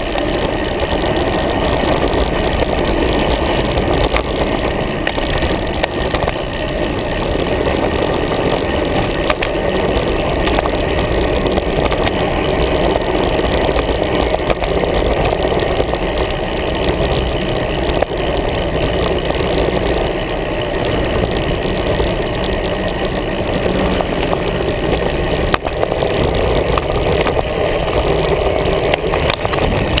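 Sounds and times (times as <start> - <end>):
bike clicks and rattles: 0.0 - 30.0
tyre noise on asphalt: 0.0 - 30.0
wind rushing over camera: 0.0 - 30.0.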